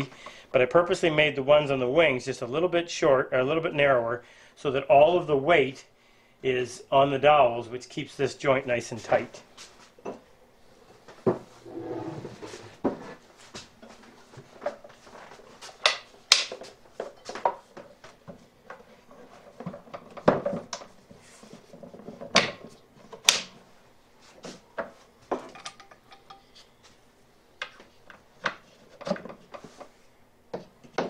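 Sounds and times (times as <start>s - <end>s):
light clatter of tools: 25.3s - 26.7s.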